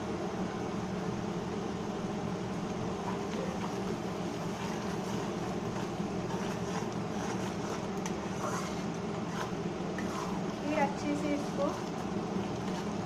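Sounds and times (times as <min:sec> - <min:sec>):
gravy sizzling in a pan: 0:02.4 - 0:13.0
spatula stirring and scraping: 0:02.8 - 0:13.0.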